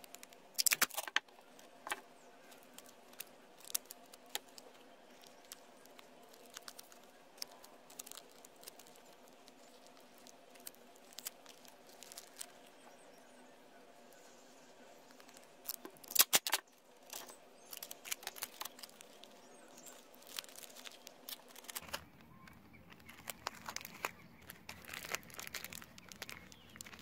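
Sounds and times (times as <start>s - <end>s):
sticky tape ripping off roll: 0.0s - 1.2s, 15.6s - 16.6s
newspaper crinkling: 0.0s - 12.8s, 14.9s - 27.0s.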